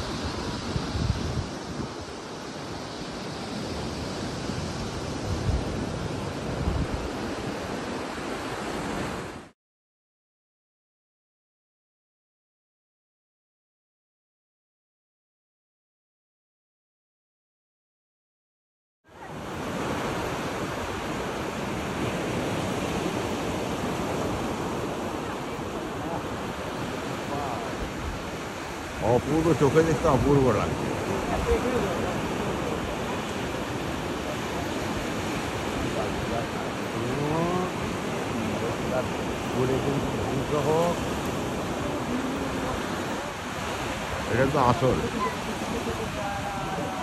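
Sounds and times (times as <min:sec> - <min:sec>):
wind on microphone: 0:00.0 - 0:09.5, 0:19.2 - 0:47.0
sea surf on beach: 0:00.0 - 0:09.6, 0:19.1 - 0:47.0.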